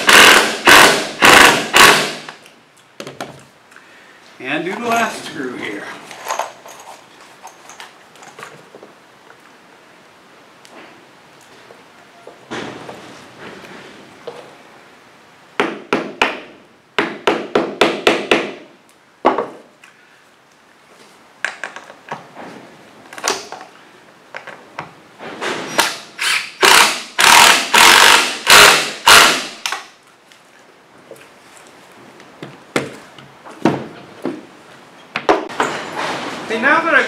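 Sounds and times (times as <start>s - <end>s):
knocks of tool and wood: 15.6s - 19.6s, 32.4s - 33.0s.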